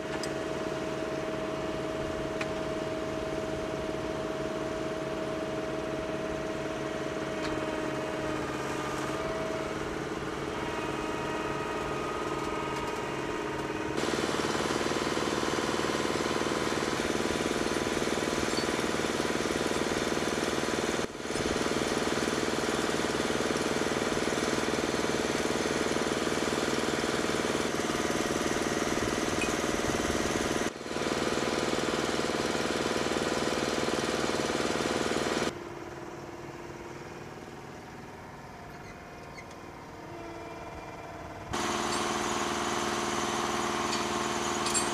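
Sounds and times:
diesel engines knocking: 41.1s - 44.9s.

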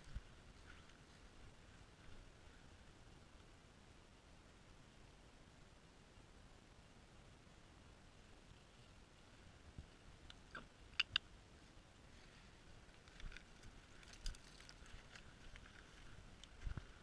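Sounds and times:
rustling in dry grass: 0.0s - 3.4s, 11.5s - 17.0s.

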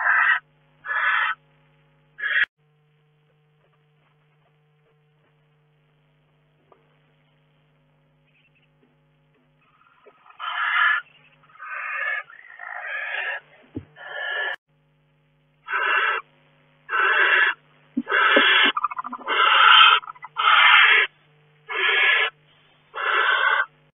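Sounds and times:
owls hissing: 0.0s - 1.4s, 2.2s - 2.5s, 9.6s - 14.6s, 15.7s - 16.3s, 16.9s - 21.1s, 21.7s - 23.8s.

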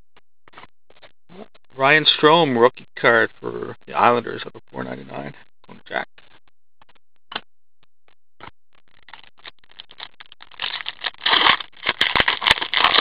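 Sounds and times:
foil wrapper crinkling and tearing: 9.0s - 13.0s.

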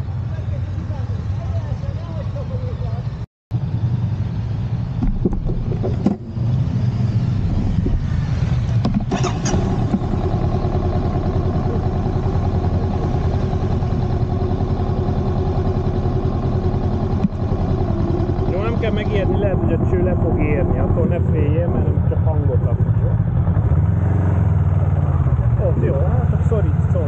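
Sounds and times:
motorcycle engine idling: 0.2s - 23.9s
short knocks: 5.0s - 6.3s.

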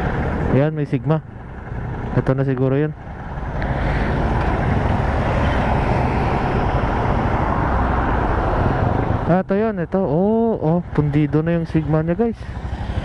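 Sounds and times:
motorcycle approaching: 0.0s - 13.0s
road traffic noise: 0.0s - 13.0s.

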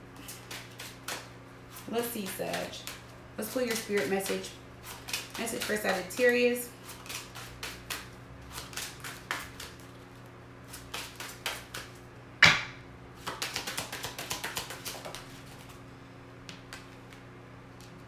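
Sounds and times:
cards shuffled by hand: 0.2s - 12.0s, 13.2s - 15.8s, 16.5s - 18.0s.

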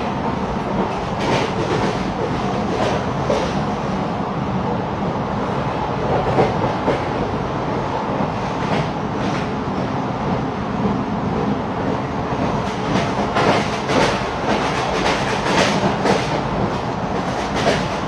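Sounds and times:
train carriage rumble: 0.0s - 18.0s.

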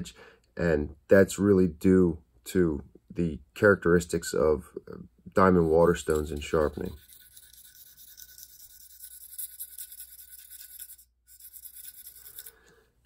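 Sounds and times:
knife scraping on whetstone: 5.7s - 12.6s.

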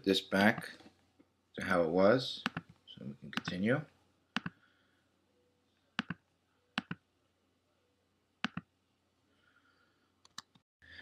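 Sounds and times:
computer mouse clicks: 2.4s - 2.7s, 4.4s - 4.6s, 6.0s - 6.2s, 6.8s - 7.0s, 8.4s - 8.7s, 10.2s - 10.6s.

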